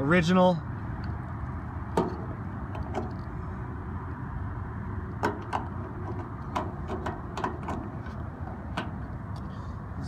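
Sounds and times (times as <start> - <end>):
metal gas cap clicks and scrapes: 5.1 - 9.4.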